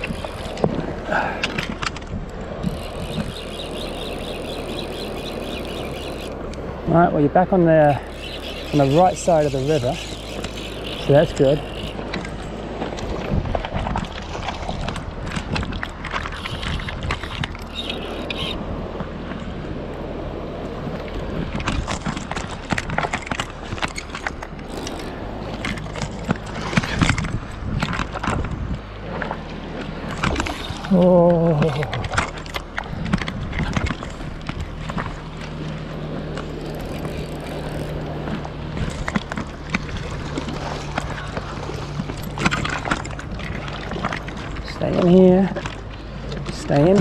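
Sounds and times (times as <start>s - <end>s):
fly reel ratchet clicking: 0.0s - 0.7s, 2.6s - 6.6s, 7.9s - 12.4s, 16.3s - 18.6s, 23.1s - 26.2s, 36.4s - 38.1s
wind on microphone: 0.0s - 6.9s, 8.0s - 24.0s, 24.7s - 45.3s
footsteps on river stones: 31.6s - 47.0s.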